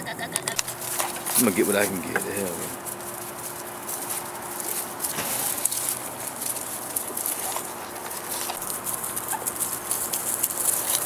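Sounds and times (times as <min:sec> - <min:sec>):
rustling in grass: 0:00.2 - 0:11.0
puppy squeaks: 0:09.2 - 0:09.7.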